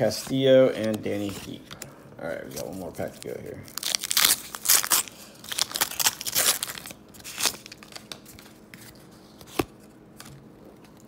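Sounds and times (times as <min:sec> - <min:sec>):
paper wrapper tearing and crinkling: 0:02.5 - 0:09.0.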